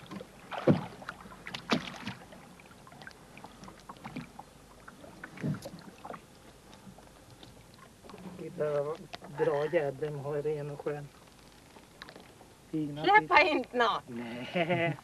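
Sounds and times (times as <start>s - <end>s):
thumps in a boat: 0.0s - 2.2s, 5.3s - 5.8s.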